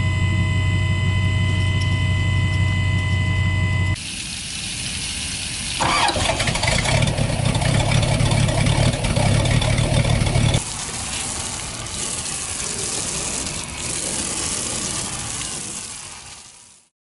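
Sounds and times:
gushing hissing water: 4.0 - 16.9
outboard motor rumbling: 5.8 - 16.3.

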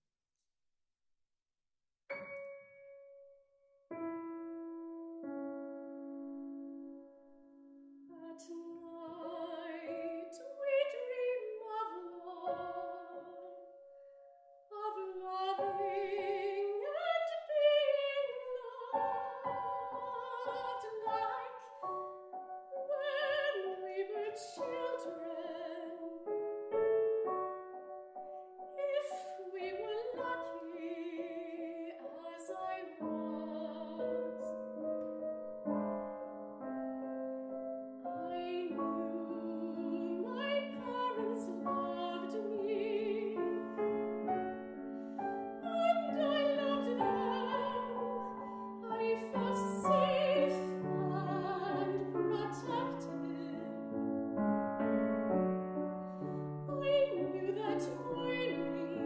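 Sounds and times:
grand piano: 2.1 - 59.0
soprano singing with vibrato: 8.1 - 13.7, 14.7 - 22.0, 22.7 - 26.3, 28.6 - 34.6, 38.1 - 44.0, 45.3 - 53.9, 56.3 - 59.0.

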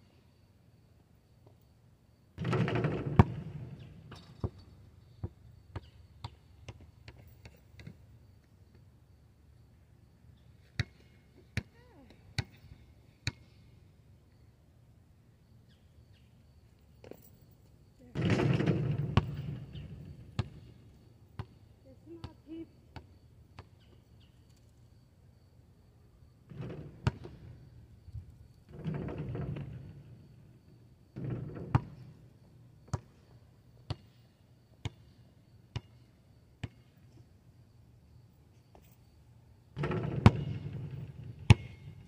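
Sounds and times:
ball rattling hoop impact: 2.4 - 4.8, 18.1 - 20.8, 26.5 - 27.6, 28.7 - 30.5, 31.2 - 32.2, 39.8 - 42.0
basketball bouncing on asphalt: 2.4 - 8.1, 10.6 - 13.7, 18.2 - 24.0, 26.5 - 27.8, 28.7 - 37.1, 39.8 - 42.0.

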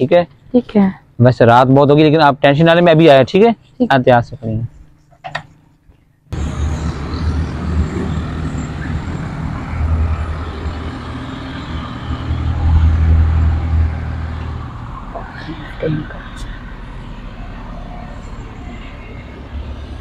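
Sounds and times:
traffic rumble: 6.3 - 20.0.

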